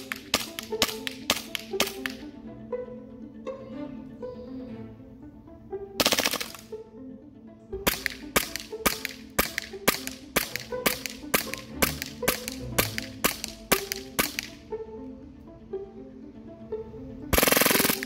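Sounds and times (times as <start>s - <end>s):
airsoft pistol shots: 6.0s - 6.6s, 7.8s - 14.5s, 17.4s - 18.0s.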